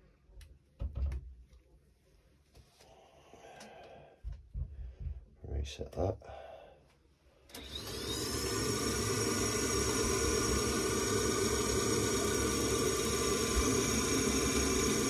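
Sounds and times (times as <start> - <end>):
boiler fan whining: 7.5 - 15.0.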